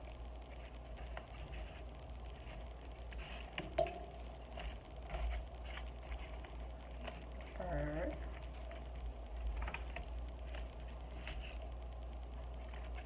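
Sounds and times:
low steady hum: 0:00.0 - 0:13.0
paper pages rustling: 0:00.5 - 0:11.8, 0:12.4 - 0:13.0.

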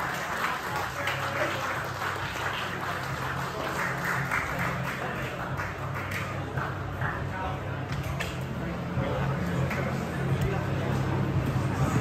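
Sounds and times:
audience clapping: 0:00.0 - 0:06.9.

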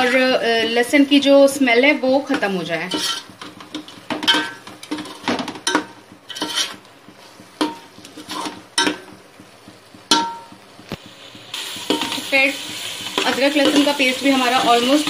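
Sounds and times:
metal spoon scraping a metal pot: 0:00.0 - 0:00.4, 0:02.8 - 0:06.9, 0:07.6 - 0:08.9.

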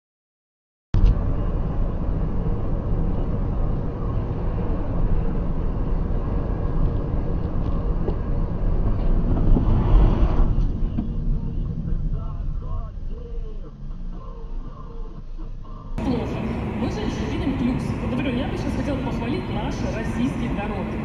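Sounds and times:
loud rushing noise: 0:01.0 - 0:13.3
car engine and tyre rumble: 0:01.0 - 0:21.0.

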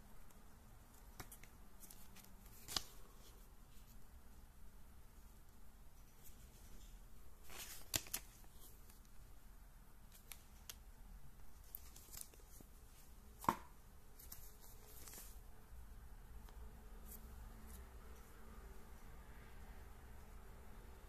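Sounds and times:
paper pages rustling: 0:00.9 - 0:04.0, 0:06.0 - 0:09.2, 0:11.5 - 0:13.6, 0:14.2 - 0:15.4.

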